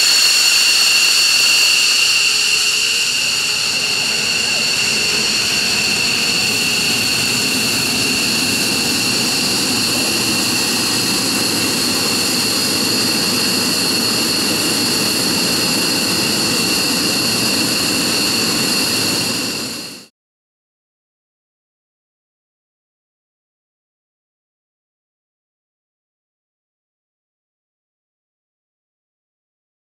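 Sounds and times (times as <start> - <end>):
jet engines idling: 0.0 - 20.1.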